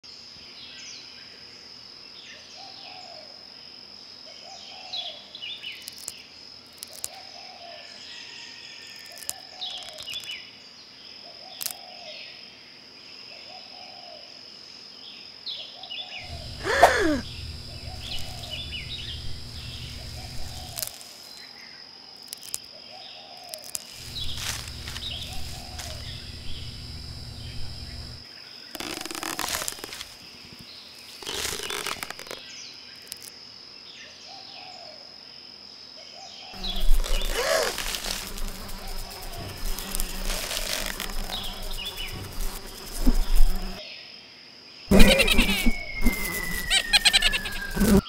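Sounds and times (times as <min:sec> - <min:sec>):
bird chirps: 0:16.2 - 0:20.8, 0:44.9 - 0:48.0
high insect drone: 0:16.2 - 0:33.4, 0:36.6 - 0:43.8, 0:44.9 - 0:48.0
low repeating animal call: 0:16.3 - 0:20.8, 0:36.6 - 0:38.1, 0:44.9 - 0:48.0.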